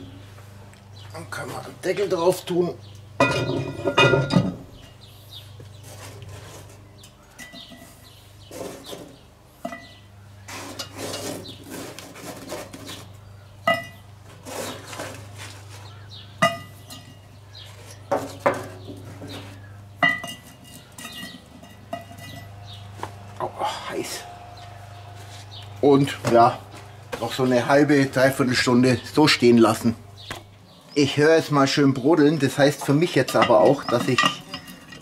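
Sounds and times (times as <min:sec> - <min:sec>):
cast-iron lid clattering: 0:03.2 - 0:05.0, 0:06.6 - 0:10.0, 0:13.6 - 0:14.0, 0:16.4 - 0:22.8, 0:33.0 - 0:35.0
metallic clinks of charcoal on lid: 0:03.2 - 0:05.0, 0:16.4 - 0:17.3, 0:20.0 - 0:22.6, 0:33.1 - 0:35.0.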